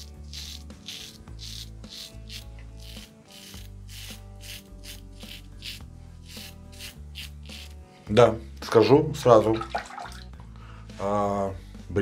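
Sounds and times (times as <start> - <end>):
razor scraping through stubble: 0.0 - 7.8
background music: 0.0 - 12.0.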